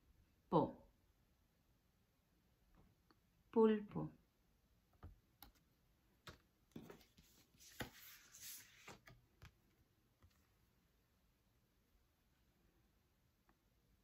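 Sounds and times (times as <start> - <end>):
cards clicking and tapping: 5.0 - 9.6.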